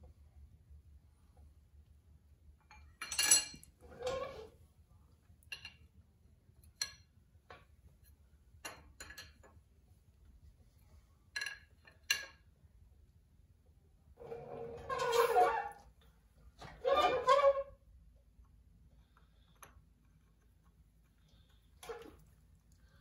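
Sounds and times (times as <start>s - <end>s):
wrench clinking on metal: 3.0s - 3.7s.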